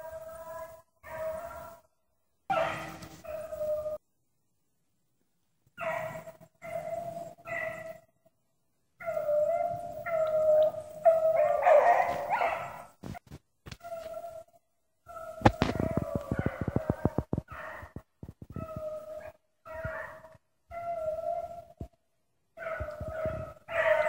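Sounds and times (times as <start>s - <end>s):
hounds baying: 2.5s - 4.0s, 5.8s - 8.1s, 9.0s - 13.0s, 15.1s - 21.9s, 22.6s - 24.0s.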